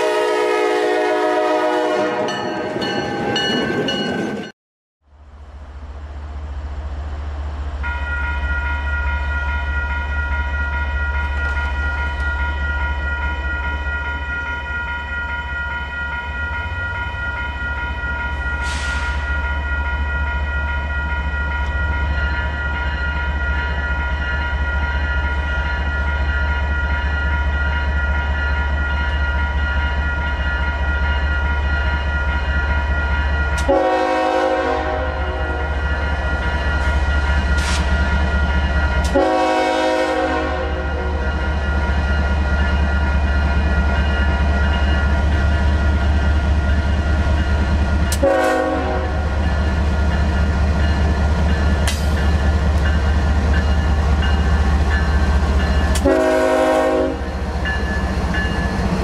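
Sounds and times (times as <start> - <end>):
locomotive air horn: 0.0 - 2.4, 33.6 - 35.8, 39.0 - 41.3, 48.1 - 49.3, 56.0 - 57.4
crossing warning bells ringing: 0.0 - 4.5, 7.8 - 59.0.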